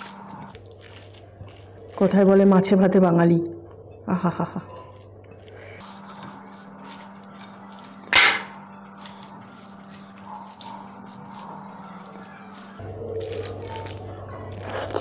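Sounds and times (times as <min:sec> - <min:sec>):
hand squishing rice: 0:00.0 - 0:02.3, 0:09.0 - 0:14.8.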